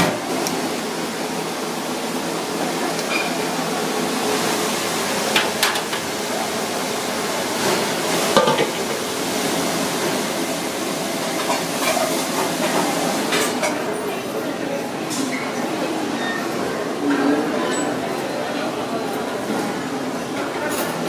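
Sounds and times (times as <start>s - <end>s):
steady kitchen hiss: 0.0s - 21.0s
pans and utensils clinking: 8.3s - 9.2s.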